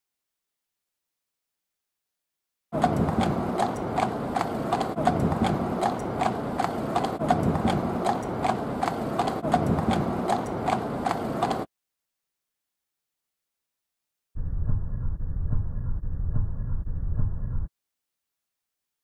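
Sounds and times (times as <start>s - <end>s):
horse hooves on paved road: 2.8s - 11.7s
carriage low rumble: 14.4s - 17.7s.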